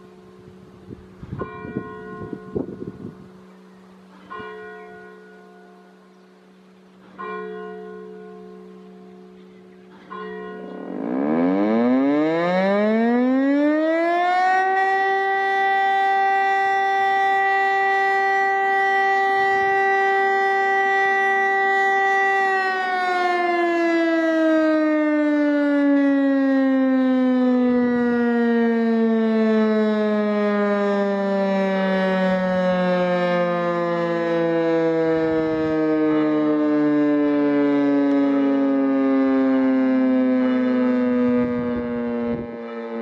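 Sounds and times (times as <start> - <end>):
rotating siren howling: 10.6 - 43.0.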